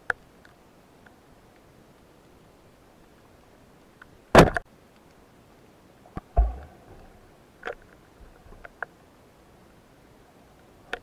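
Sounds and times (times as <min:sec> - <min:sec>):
sharp underwater knocks and clicks: 0:06.1 - 0:07.0
dull low thump: 0:06.2 - 0:07.2.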